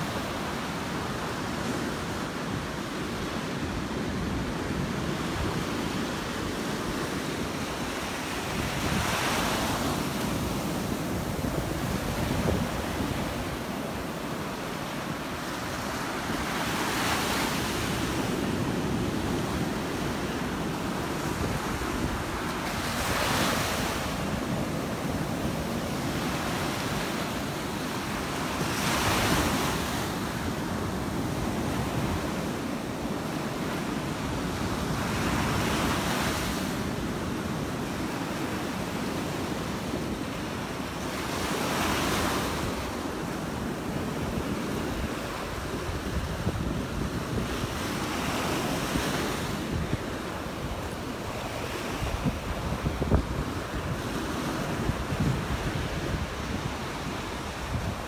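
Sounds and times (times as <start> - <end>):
steady rush of water: 0.0 - 18.1
waves crashing on beach: 0.0 - 58.0
wind buffeting microphone: 51.8 - 58.0.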